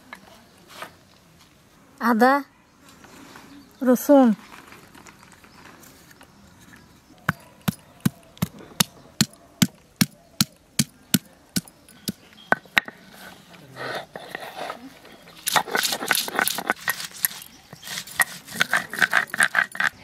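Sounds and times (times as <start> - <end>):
stone roller knocking on grinding stone: 15.5 - 20.0.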